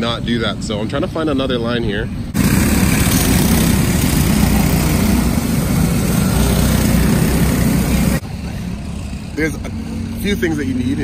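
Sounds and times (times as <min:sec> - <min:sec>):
go-kart engines running: 0:02.2 - 0:11.0.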